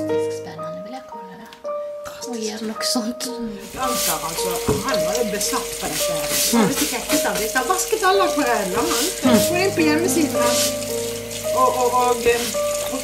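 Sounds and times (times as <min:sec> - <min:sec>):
brush scrubbing wet paper: 0:03.6 - 0:13.0
water spraying from a hose: 0:03.6 - 0:13.0.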